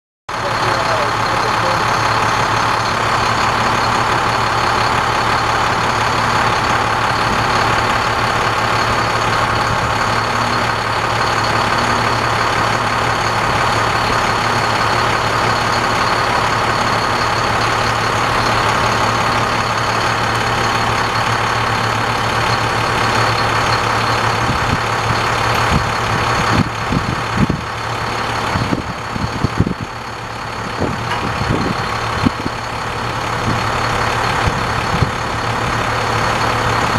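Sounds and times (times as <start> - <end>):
diesel engine idling: 0.3 - 36.9
knocks and clunks: 30.7 - 32.6.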